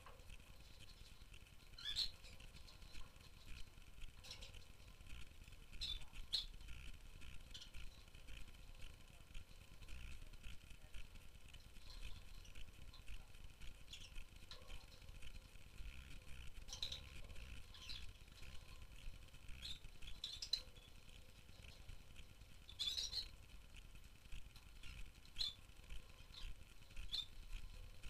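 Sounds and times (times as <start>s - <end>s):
lovebirds chirping: 0.5s - 5.0s, 5.7s - 8.1s, 11.8s - 15.0s, 16.6s - 21.9s, 22.6s - 23.4s, 24.8s - 28.0s.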